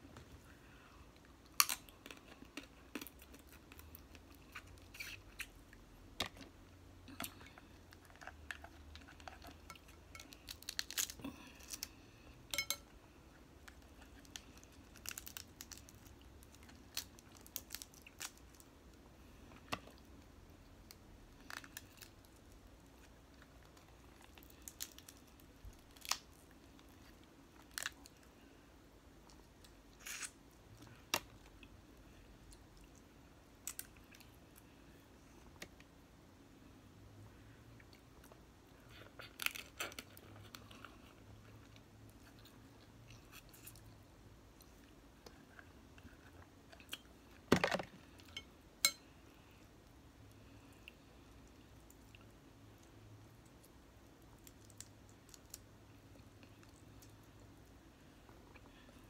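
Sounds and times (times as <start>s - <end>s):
crab shells cracking by hand: 10.2s - 11.9s, 14.2s - 18.6s.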